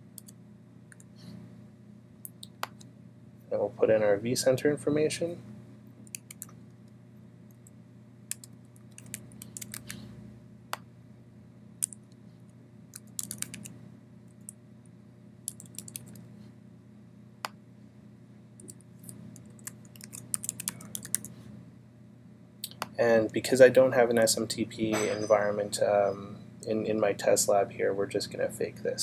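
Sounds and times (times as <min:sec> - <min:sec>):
low steady hum: 0:00.0 - 0:29.0
computer keyboard typing: 0:06.1 - 0:06.5, 0:08.3 - 0:10.0, 0:11.8 - 0:12.1, 0:12.9 - 0:13.7, 0:15.5 - 0:16.2, 0:18.6 - 0:21.3.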